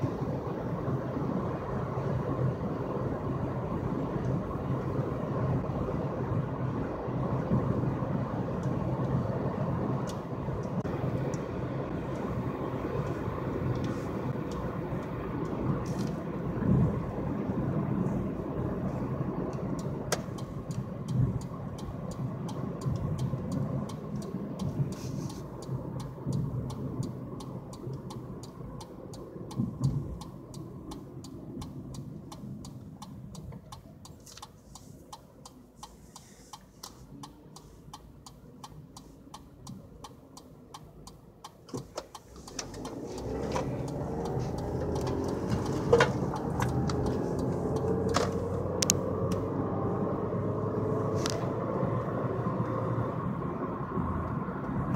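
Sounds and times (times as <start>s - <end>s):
faint regular ticking: 18.8s - 49.4s.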